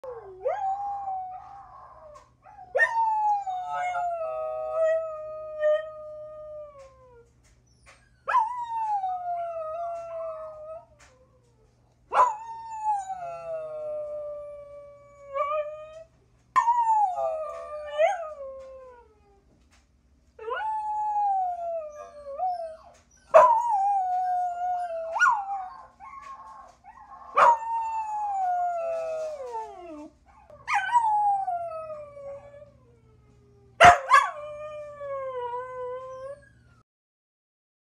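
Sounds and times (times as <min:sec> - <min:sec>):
dog howling: 0:00.0 - 0:07.0.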